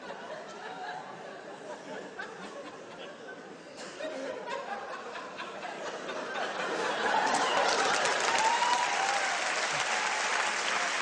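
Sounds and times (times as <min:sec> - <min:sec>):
audience laughter: 0:00.0 - 0:08.1
audience applause: 0:06.8 - 0:11.0.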